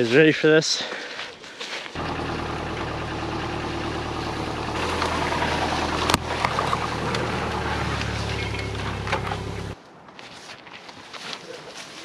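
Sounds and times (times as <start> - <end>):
car engine running: 2.0 - 9.8.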